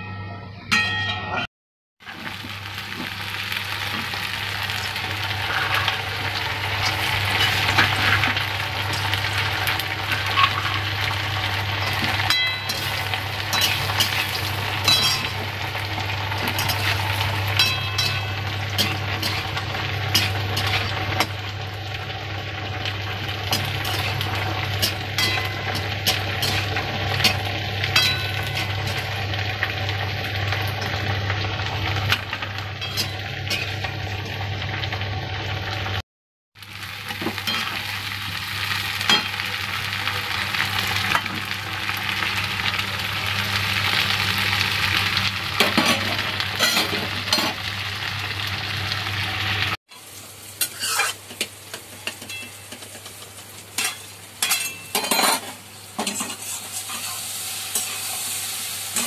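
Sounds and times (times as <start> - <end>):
hot oil sizzling in a wok: 2.0 - 36.0, 36.6 - 59.0
metal spatula scraping a pan: 5.3 - 10.8, 11.8 - 15.4, 16.4 - 21.3, 23.4 - 29.1, 50.6 - 58.2.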